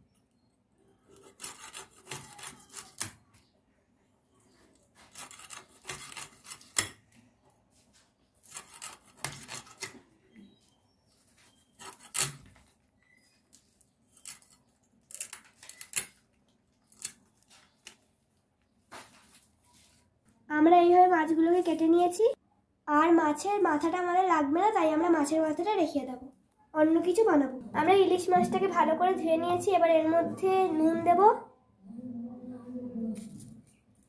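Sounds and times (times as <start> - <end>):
blade rasping through fish: 1.1 - 3.1, 8.4 - 10.0.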